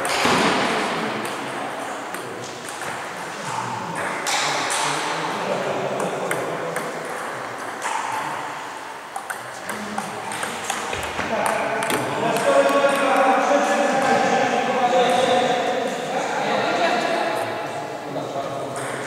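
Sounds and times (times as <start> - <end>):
table tennis ball clicks: 9.1 - 13.2.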